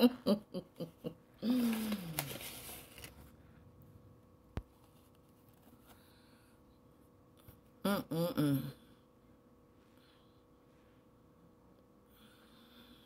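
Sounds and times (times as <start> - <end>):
woman humming with closed mouth: 7.8 - 8.9.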